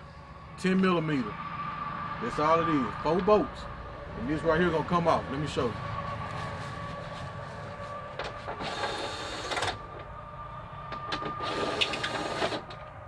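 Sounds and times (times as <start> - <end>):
steady high hum: 0.0 - 13.0
cordless power driver whirring: 8.5 - 9.8, 11.4 - 12.6.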